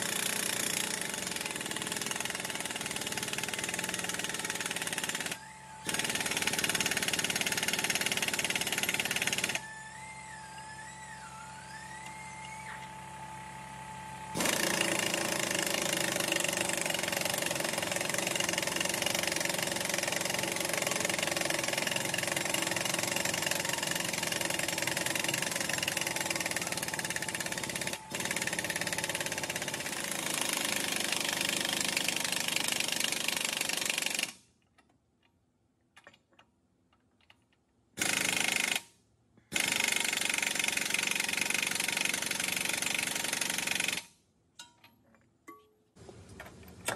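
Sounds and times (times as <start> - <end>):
air impact wrench hammering: 0.0 - 9.6, 14.3 - 34.4, 39.5 - 44.8.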